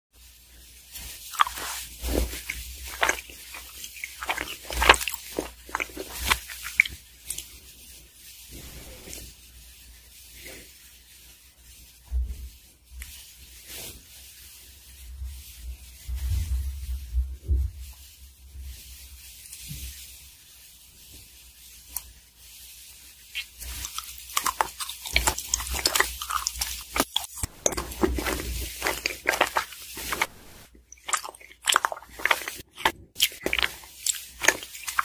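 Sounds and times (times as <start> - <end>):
crisp crunching: 0.6 - 7.6, 23.2 - 35.0
biting and chewing: 1.0 - 7.5, 23.4 - 35.0.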